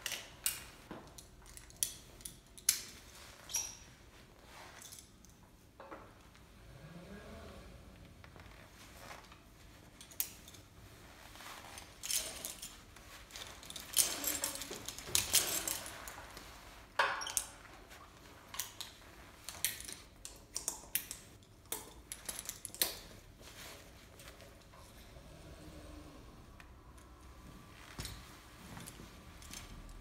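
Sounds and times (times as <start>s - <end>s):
climbing hardware clinking: 11.6s - 17.7s.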